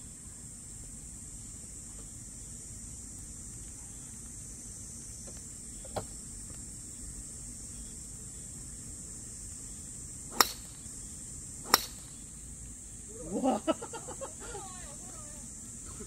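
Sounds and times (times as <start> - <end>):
high-pitched hiss: 0.0 - 16.0
sharp click: 10.4 - 10.8, 11.7 - 12.2.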